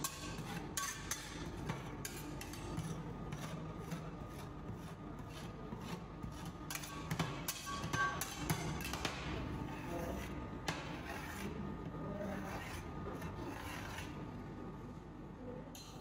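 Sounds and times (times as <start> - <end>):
metal spatula scraping metal plate: 0.0 - 9.0, 9.6 - 14.2.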